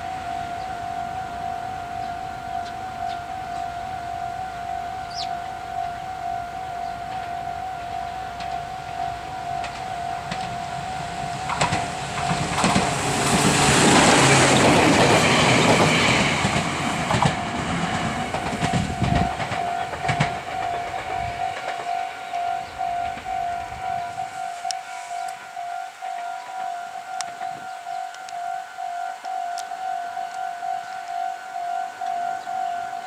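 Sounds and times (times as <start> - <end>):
level crossing warning bell: 0.0 - 33.0
train wheels clacking over joints: 8.4 - 24.8.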